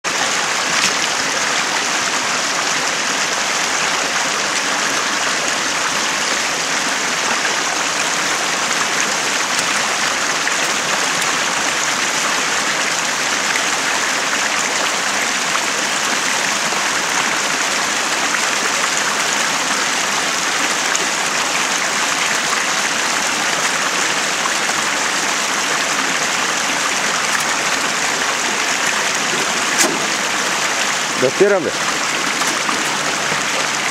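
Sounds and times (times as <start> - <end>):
rocky stream running: 0.1 - 33.9.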